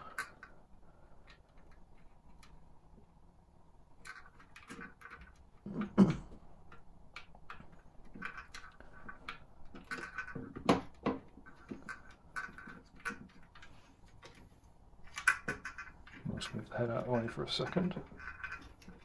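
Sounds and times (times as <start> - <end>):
plastic parts clicking and tapping: 4.0 - 19.0.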